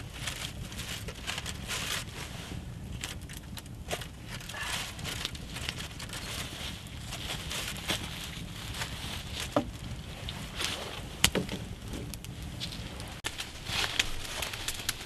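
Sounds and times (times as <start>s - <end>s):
campfire crackling: 0.0s - 15.0s.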